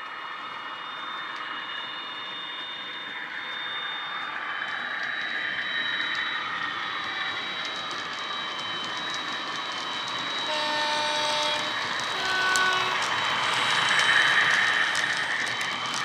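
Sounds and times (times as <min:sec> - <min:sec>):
model train engine sound with whine: 0:00.0 - 0:16.0
wheels clicking on track: 0:02.9 - 0:16.0
two-note train horn: 0:10.5 - 0:13.1.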